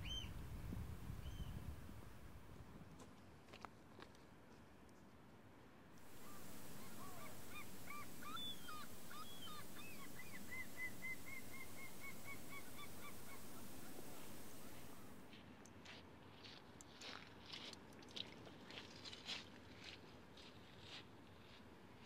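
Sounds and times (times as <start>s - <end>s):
steady outdoor hiss: 0.0s - 17.1s
geese honking: 6.1s - 15.2s.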